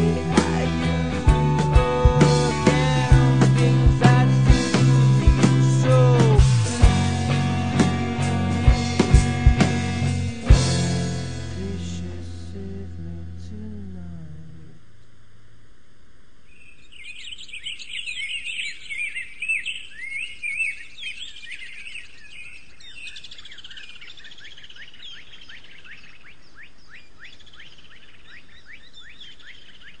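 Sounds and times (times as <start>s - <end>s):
faint steady hiss: 6.5s - 18.2s
birds chirping and singing: 16.5s - 30.0s.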